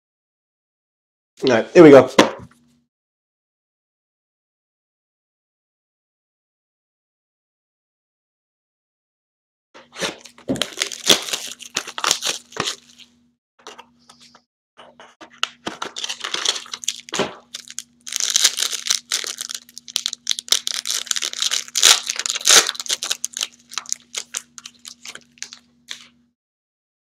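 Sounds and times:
foil pack tearing and crinkling: 9.9 - 13.1, 15.5 - 26.1.

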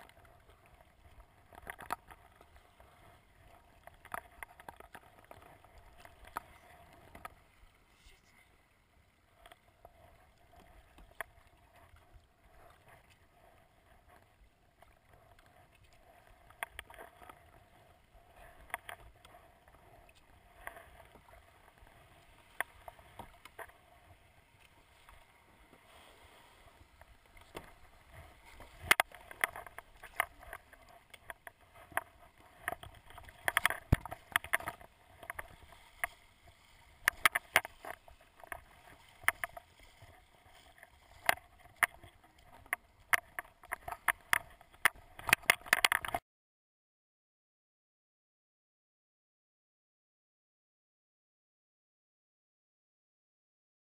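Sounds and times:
paddle splashing in water: 14.8 - 46.2.

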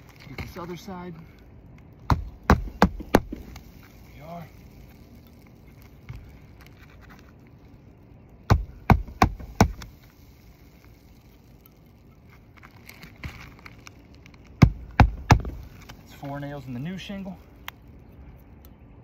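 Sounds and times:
hammer driving roofing nail: 2.1 - 3.5, 8.5 - 9.9, 14.6 - 15.6.

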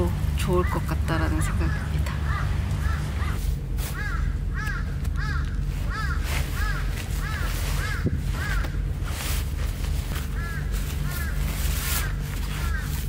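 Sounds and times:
steady low rumble: 0.0 - 13.0
crow cawing: 1.5 - 9.0, 10.1 - 13.0.

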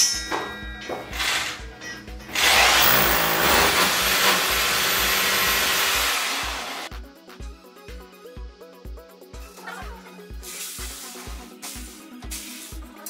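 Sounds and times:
rotary hammer drilling into wall: 2.3 - 6.9.

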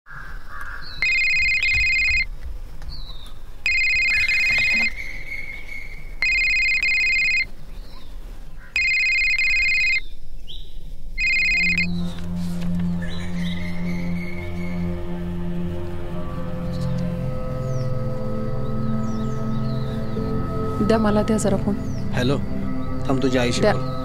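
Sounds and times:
mobile phone ringing: 1.0 - 2.3, 3.7 - 4.9, 6.2 - 7.5, 8.8 - 10.0, 11.2 - 11.9
low music: 11.4 - 24.0.

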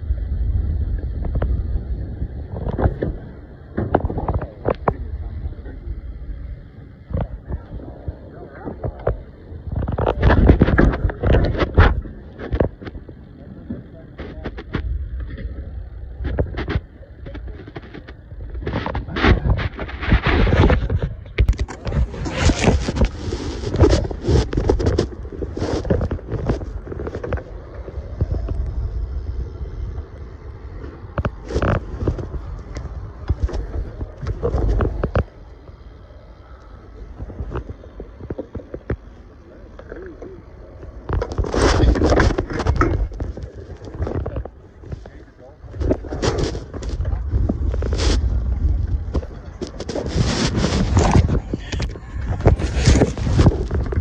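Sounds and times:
bike rolling over concrete: 0.0 - 54.0
wind buffeting microphone: 0.0 - 54.0
bike knocks and scrapes: 41.1 - 54.0.

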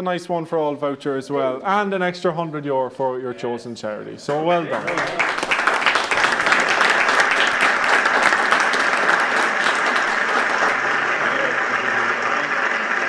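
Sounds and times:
audience applauding: 4.7 - 13.0.

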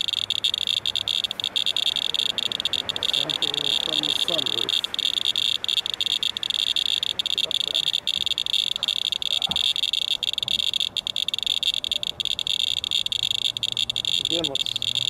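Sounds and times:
geiger counter clicking rapidly: 0.0 - 15.0.

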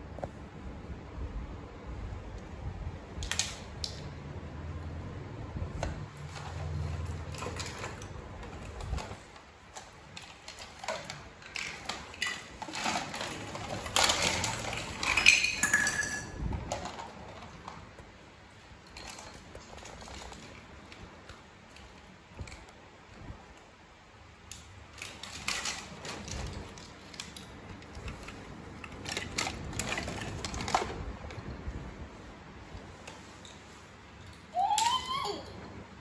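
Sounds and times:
plastic toys clattering: 6.2 - 18.0, 18.8 - 22.6, 24.5 - 31.6.

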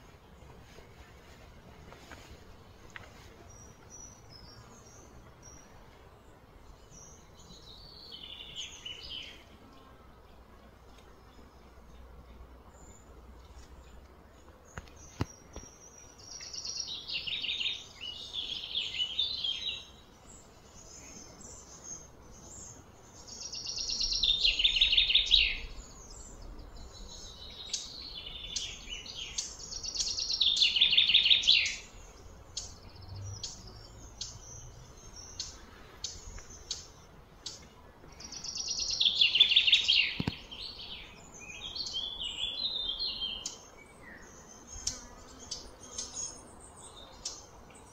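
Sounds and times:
songbird trilling song: 6.8 - 9.4, 13.8 - 47.9
soft bird chirps: 10.9 - 47.9.

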